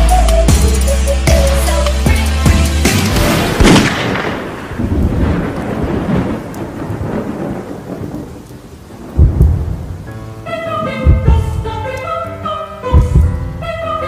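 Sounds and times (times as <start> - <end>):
heavy low hit: 3.1 - 6.3
thunderclap crack and rumble: 3.3 - 10.1, 13.0 - 13.6.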